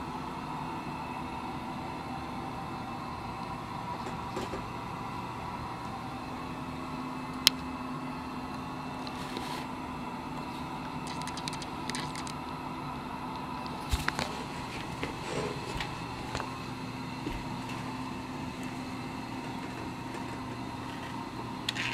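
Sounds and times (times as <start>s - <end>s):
lathe motor hum: 7.9s - 21.9s.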